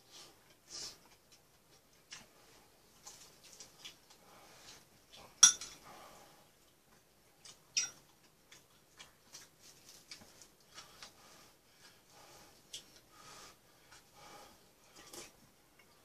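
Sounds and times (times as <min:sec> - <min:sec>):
chewing sounds: 0:00.4 - 0:05.4, 0:06.6 - 0:11.2
cutlery clinking against dishes: 0:05.4 - 0:05.8, 0:07.8 - 0:08.0.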